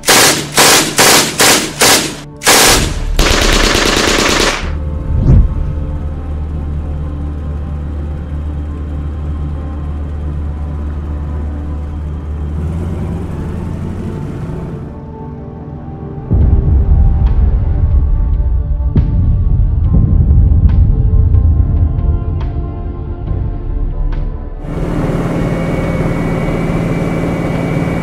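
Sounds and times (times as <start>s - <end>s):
machine-gun fire: 0.0s - 4.8s
aircraft engine drone: 0.0s - 18.2s, 24.6s - 28.0s
brief whoosh: 5.0s - 5.8s.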